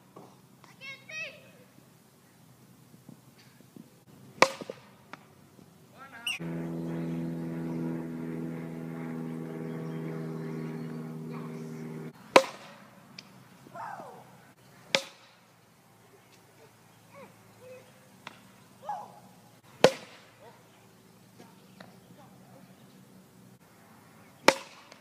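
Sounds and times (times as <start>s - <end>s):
plastic bat hitting ball: 4.4s - 4.8s, 12.4s - 12.8s, 14.9s - 15.3s, 19.8s - 20.2s, 24.5s - 25.0s
droning hum: 6.0s - 12.2s
person shouting: 13.8s - 14.2s.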